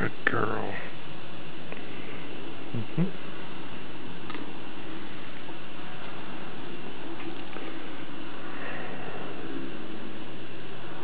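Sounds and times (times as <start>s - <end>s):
soft low vocal sounds: 1.7s - 3.3s.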